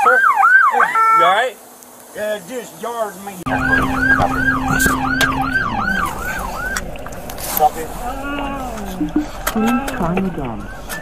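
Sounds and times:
steady low hum: 3.5s - 10.6s
car engine rumble: 3.5s - 11.0s
police siren sweeping: 3.5s - 11.0s.

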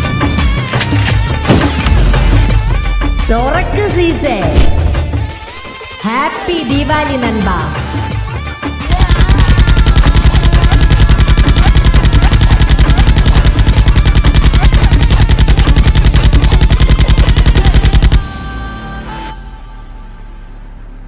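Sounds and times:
machine-gun automatic fire: 8.9s - 18.2s.

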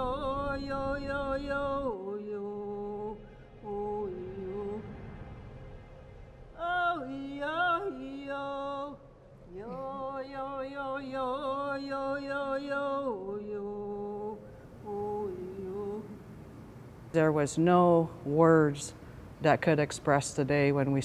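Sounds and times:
person singing long held notes: 0.0s - 4.8s, 6.6s - 16.2s.

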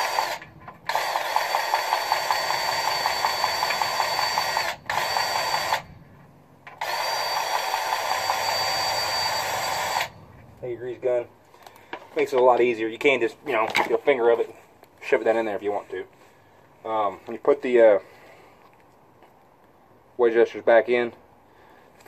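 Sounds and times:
power grease gun whining: 0.0s - 6.0s, 6.7s - 10.2s.

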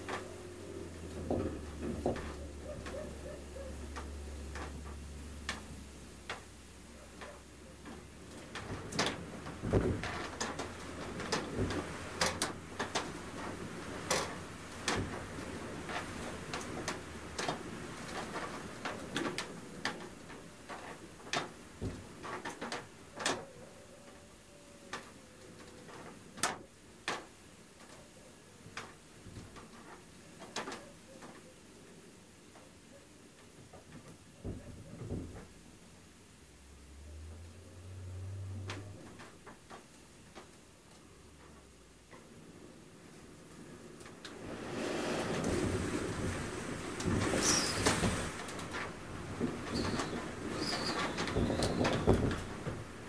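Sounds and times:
shutters knocking and rattling: 0.1s - 6.5s
blizzard wind: 43.7s - 53.0s.

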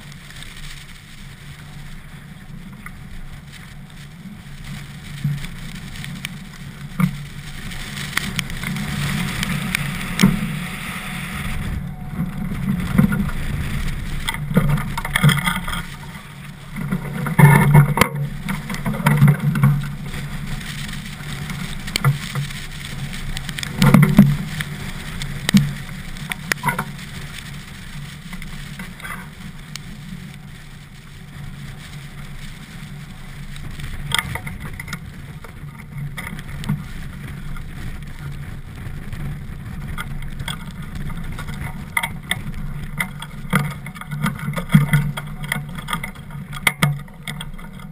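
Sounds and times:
runners rumbling on ice: 0.0s - 47.9s
wind buffeting microphone: 6.7s - 26.8s.

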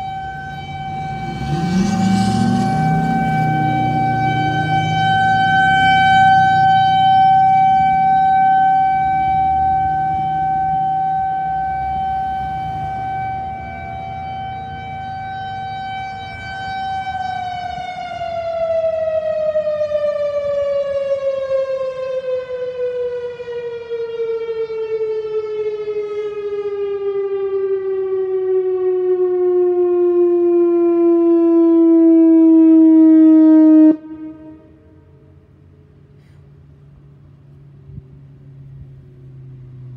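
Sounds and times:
outdoor warning siren: 0.0s - 39.9s.

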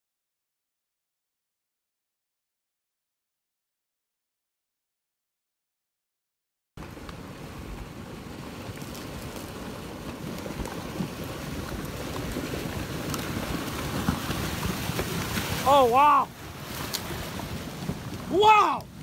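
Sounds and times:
debris flow rushing rumble: 6.8s - 19.0s.

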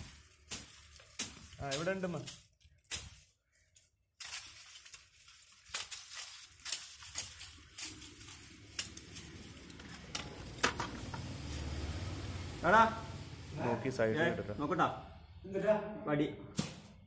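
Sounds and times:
nylon net rustling against phone: 0.0s - 10.1s.

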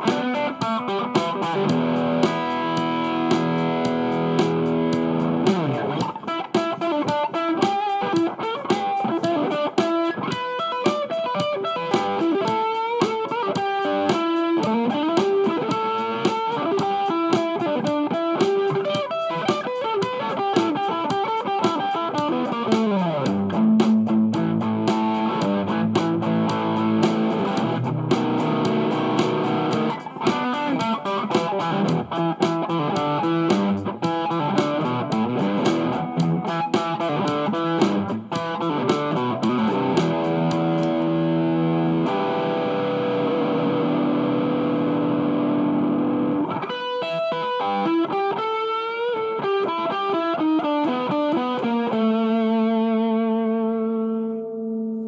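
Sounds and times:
electric guitar melodic runs: 0.0s - 55.0s.

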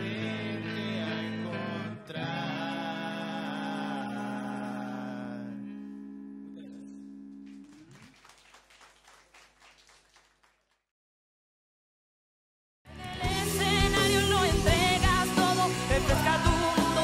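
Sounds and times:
electric guitar chord ringing: 4.1s - 7.9s
faint scattered clapping: 7.4s - 10.9s
guitar downward slide: 13.2s - 17.0s.

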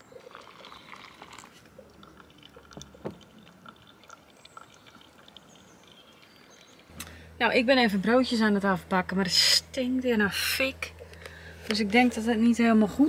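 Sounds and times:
water trickling onto coffee: 0.0s - 6.9s.

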